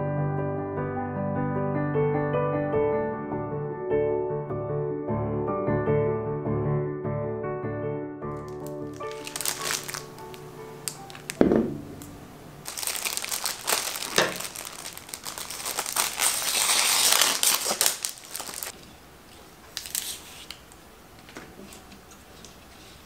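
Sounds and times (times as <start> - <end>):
plastic sleeve crinkling: 8.3 - 18.8, 19.6 - 20.8
leaves being stripped: 8.4 - 11.4, 12.0 - 18.8, 19.7 - 20.7
thump: 11.4 - 12.0.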